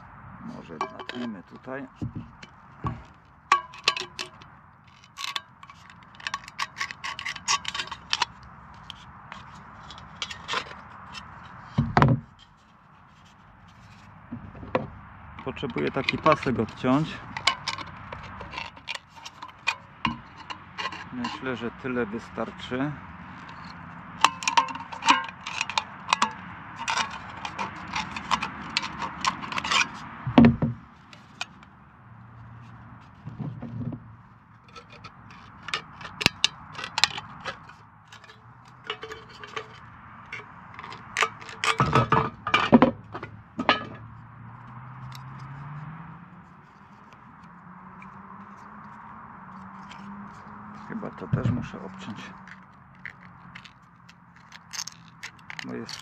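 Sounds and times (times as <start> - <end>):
can rattling: 3.5 - 10.8, 23.4 - 30.0, 52.4 - 56.0
tin snips cutting metal: 34.7 - 39.8, 52.3 - 56.0.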